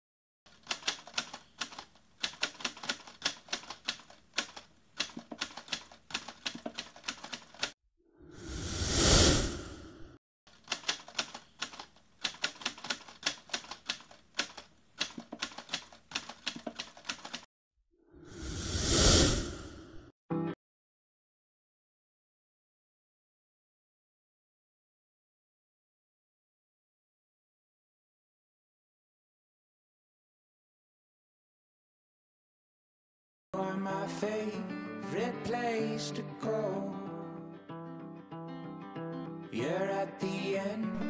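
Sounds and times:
typewriter key clicks: 0.5s - 7.7s, 10.6s - 17.4s.

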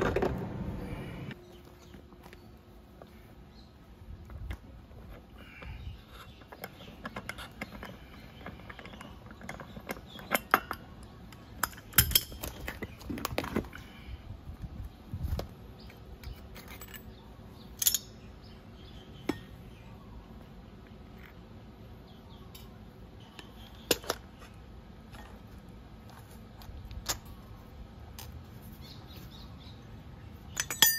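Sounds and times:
metal parts clicking and clinking: 6.4s - 13.4s, 15.9s - 18.2s, 30.5s - 30.9s.

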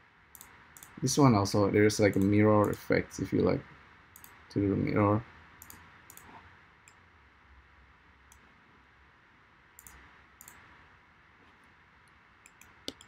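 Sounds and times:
faint computer mouse clicks: 0.3s - 1.0s, 4.2s - 4.4s, 5.6s - 7.0s, 9.8s - 10.6s, 12.4s - 13.0s.

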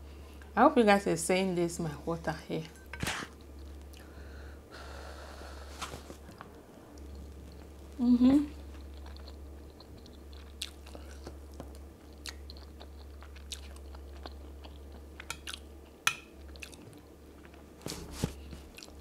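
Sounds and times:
steady low hum: 0.0s - 19.0s
person chewing: 8.6s - 15.7s, 16.4s - 17.6s, 18.4s - 19.0s.

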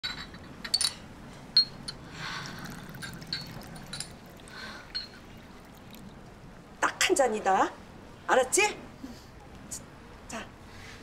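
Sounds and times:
glass clinks: 1.6s - 2.0s, 2.9s - 4.2s, 4.9s - 5.3s
liquid pouring into glass: 2.4s - 6.4s.

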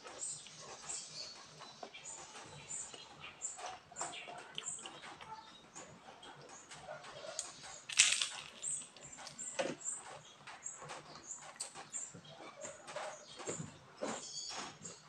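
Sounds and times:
crispy wrapper crackling while chewing: 7.4s - 9.4s
loud crunch: 7.4s - 9.4s.

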